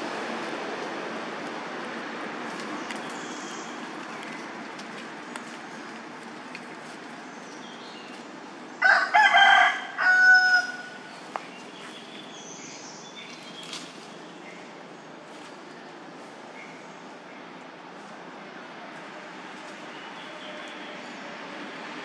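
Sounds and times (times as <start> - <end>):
rooster crowing: 8.8 - 11.0.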